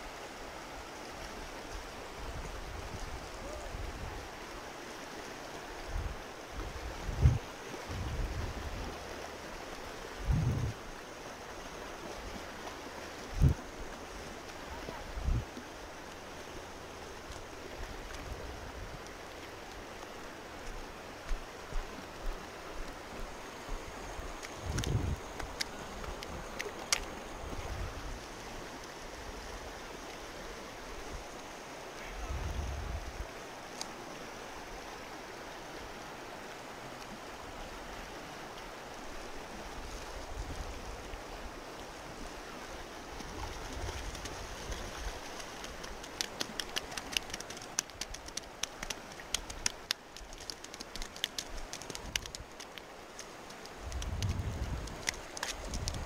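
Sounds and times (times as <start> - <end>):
river rushing over gravel: 0.0 - 56.0
wind on microphone: 5.8 - 9.1, 10.2 - 10.8, 13.3 - 13.7, 14.7 - 15.6, 23.1 - 26.6, 32.1 - 33.3, 53.7 - 56.0.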